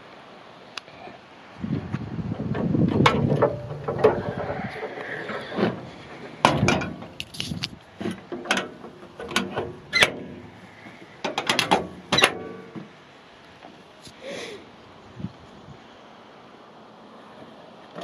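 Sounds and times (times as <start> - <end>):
metal hood latch clacking: 2.5 - 10.6, 11.2 - 12.9.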